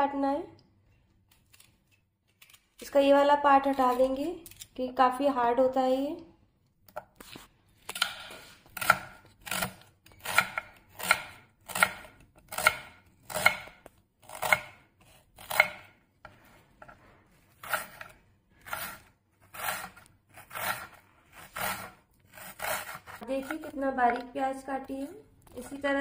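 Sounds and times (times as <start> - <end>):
knife slicing onion on board: 7.8 - 16.9, 17.5 - 24.3.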